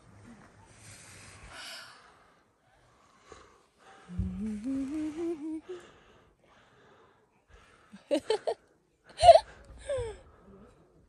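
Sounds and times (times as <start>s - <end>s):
person humming: 4.1s - 5.8s.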